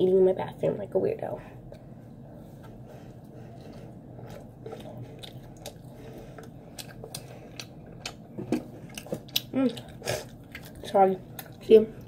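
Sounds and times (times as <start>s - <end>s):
wet chewing clicks and smacks: 3.5s - 12.0s.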